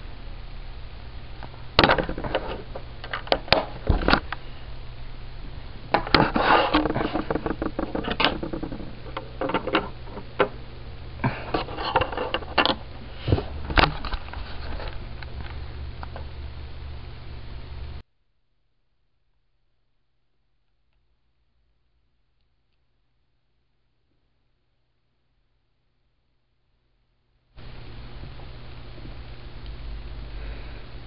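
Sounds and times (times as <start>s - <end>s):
plastic bricks rattling: 6.0s - 10.5s.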